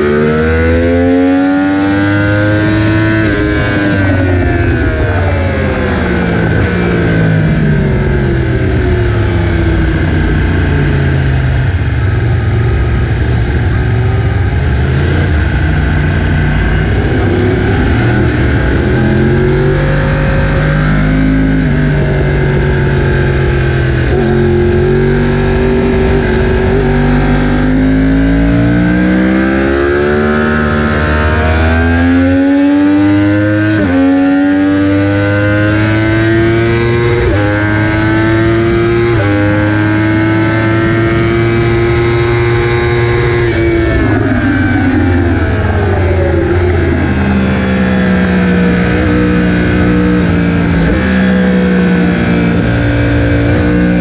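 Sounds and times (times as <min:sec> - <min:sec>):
motorcycle engine revving and shifting: 0:00.0 - 0:54.0.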